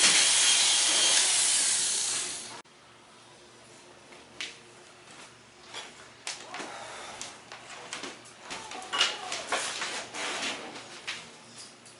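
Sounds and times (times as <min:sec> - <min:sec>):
hair dryer blowing: 0:00.0 - 0:02.6.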